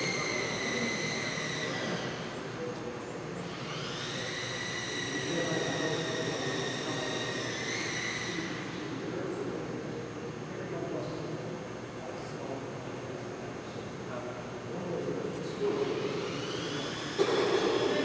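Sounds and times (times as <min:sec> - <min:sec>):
electric model plane motor whining: 0:00.0 - 0:02.4, 0:03.4 - 0:08.8, 0:15.8 - 0:18.0.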